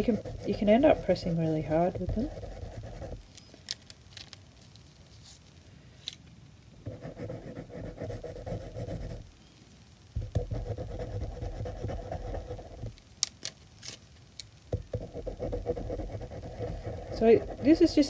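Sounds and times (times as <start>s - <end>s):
crayons scratching on paper: 0.0s - 3.2s, 10.4s - 12.9s, 14.9s - 18.0s.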